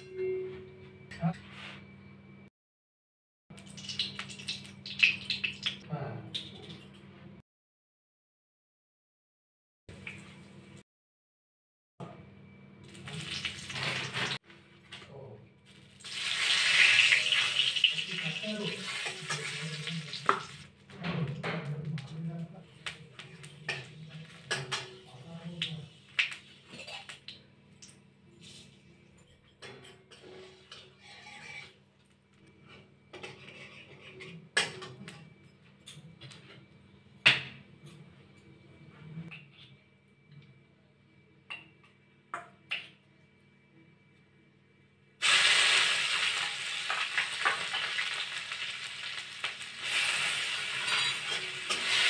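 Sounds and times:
hot oil sizzling: 0:03.7 - 0:05.8, 0:13.0 - 0:14.4, 0:15.8 - 0:20.7, 0:45.2 - 0:52.0
spatula scraping in pan of oil: 0:30.2 - 0:31.8, 0:32.7 - 0:34.4, 0:49.8 - 0:52.0.

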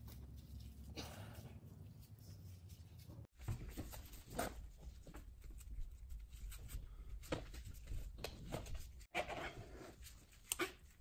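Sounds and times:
heat wrap rustling and brushing: 0:00.0 - 0:06.8.

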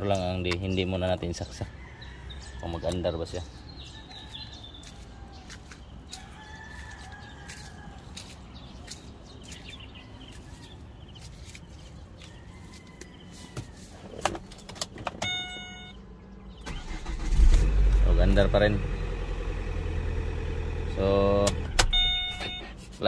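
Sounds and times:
chickens calling: 0:00.8 - 0:14.9
electronic beeping chime: 0:15.2 - 0:16.0.

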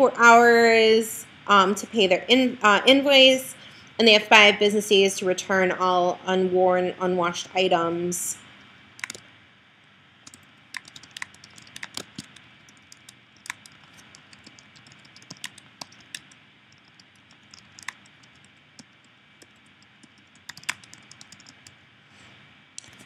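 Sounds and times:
typing on computer keyboard: 0:09.0 - 0:09.2, 0:10.2 - 0:21.8.

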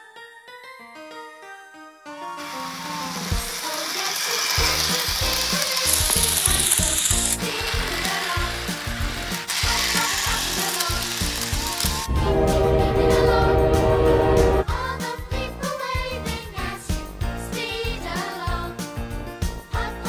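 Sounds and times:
toy electric train running: 0:02.4 - 0:12.1.

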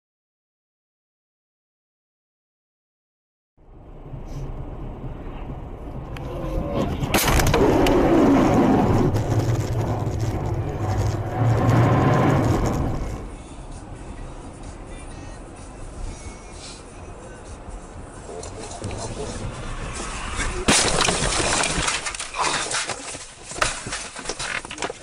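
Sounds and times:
loud rumbling rushing noise: 0:03.6 - 0:14.0, 0:17.9 - 0:22.2
road noise: 0:03.6 - 0:25.0
vehicle noise: 0:03.6 - 0:25.0
crash bang: 0:07.0 - 0:13.3, 0:20.3 - 0:24.1.

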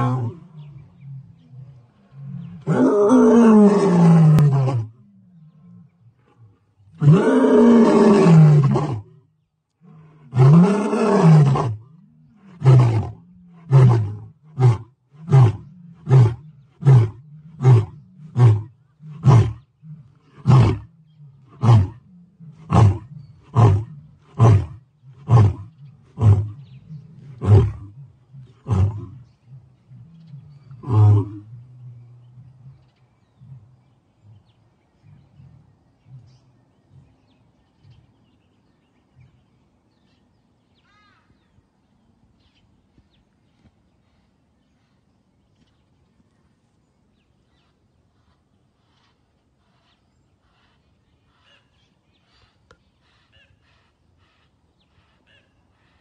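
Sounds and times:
lion grunting roars: 0:00.0 - 0:09.1, 0:09.8 - 0:32.8
lion roaring: 0:00.0 - 0:09.1, 0:09.8 - 0:32.4.

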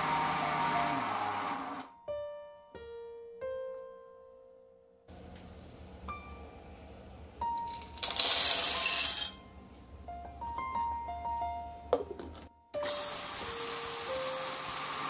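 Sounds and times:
mixer grinder grinding: 0:00.0 - 0:01.9, 0:07.6 - 0:09.4, 0:12.8 - 0:15.0
peanuts poured into steel jar: 0:07.7 - 0:09.4.

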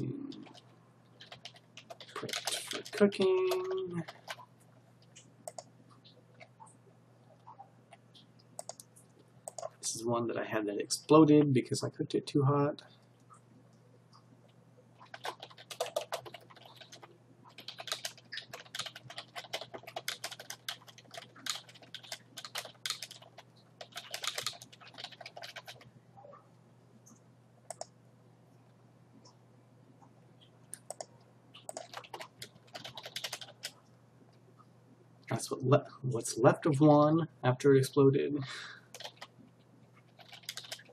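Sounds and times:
computer keyboard typing: 0:00.3 - 0:04.5, 0:05.4 - 0:05.7, 0:08.6 - 0:09.7, 0:15.0 - 0:25.9, 0:27.7 - 0:27.9, 0:30.8 - 0:33.8, 0:38.9 - 0:39.3, 0:40.0 - 0:40.9.

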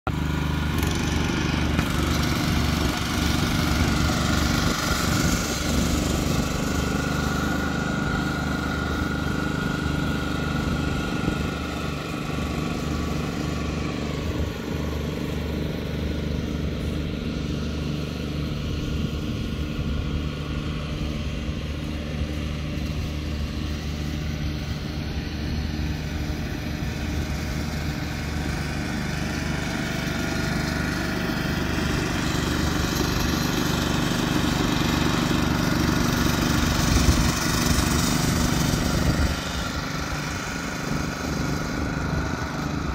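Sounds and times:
lawn mower engine humming: 0:00.0 - 0:42.9
mower cutting and rolling noise: 0:00.1 - 0:42.9.

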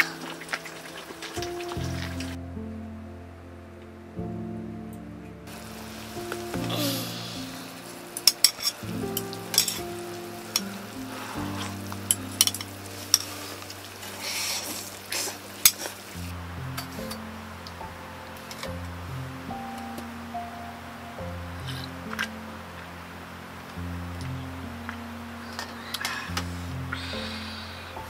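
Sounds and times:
soft background music: 0:00.0 - 0:28.0
food sizzling in a pan: 0:05.5 - 0:17.2
spoons clinking on steel dishes: 0:08.2 - 0:08.8, 0:09.5 - 0:09.8.

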